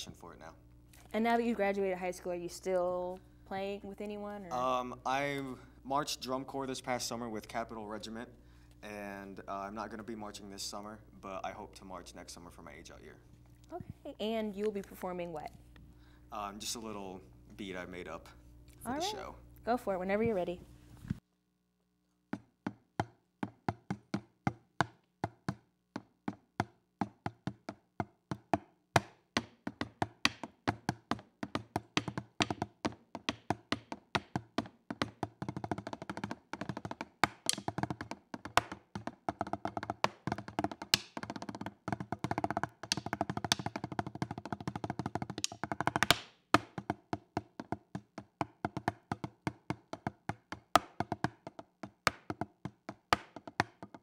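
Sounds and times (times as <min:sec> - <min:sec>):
drumsticks on practice pads: 0:35.6 - 0:38.8, 0:42.2 - 0:46.9.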